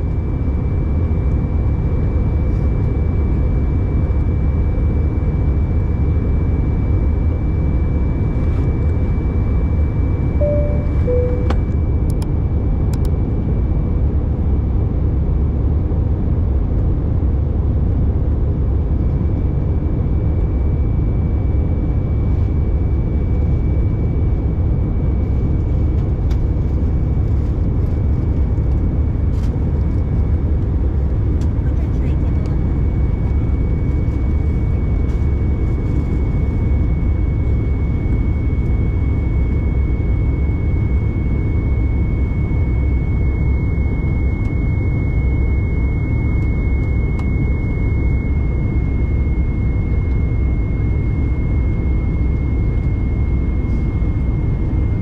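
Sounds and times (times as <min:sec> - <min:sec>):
aircraft cabin engine and airflow roar: 0:00.0 - 0:55.0
faint high whine: 0:07.4 - 0:12.2, 0:32.6 - 0:55.0
two-note falling chime: 0:10.4 - 0:11.7.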